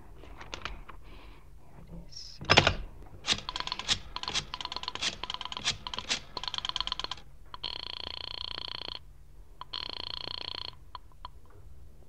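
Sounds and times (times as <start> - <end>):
rotary dial clicking: 2.6 - 7.7.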